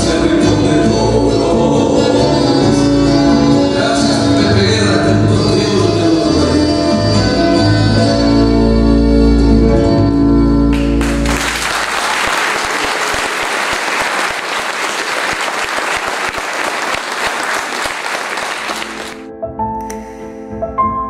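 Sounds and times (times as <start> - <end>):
audience applause: 10.7 - 19.3.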